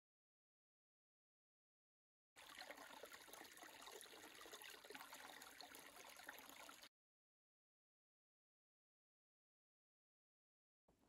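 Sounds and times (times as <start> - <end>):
creek trickling over rocks: 2.4 - 6.9.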